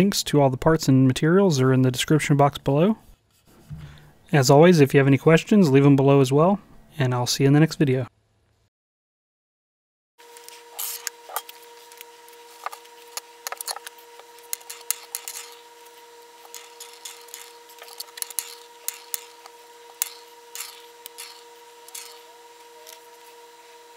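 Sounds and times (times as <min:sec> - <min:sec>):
faint hum: 0:00.0 - 0:08.7, 0:10.2 - 0:23.9.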